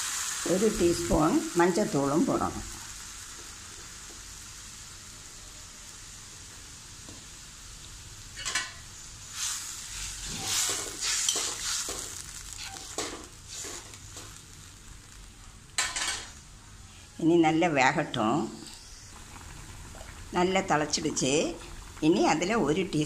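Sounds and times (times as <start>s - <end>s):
gravy simmering with high sizzle: 0.0s - 23.0s
spoon stirring and scraping: 9.4s - 14.4s.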